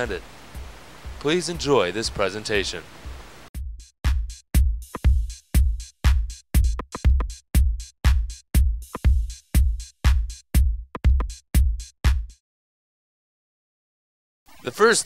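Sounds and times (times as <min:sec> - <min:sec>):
drum-machine beat: 0:03.1 - 0:12.4.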